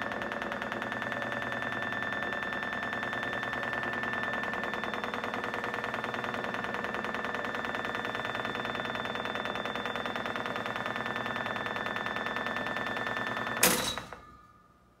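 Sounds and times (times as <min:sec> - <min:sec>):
lift drive whining: 0:00.0 - 0:14.8
loud clunk: 0:13.6 - 0:14.6.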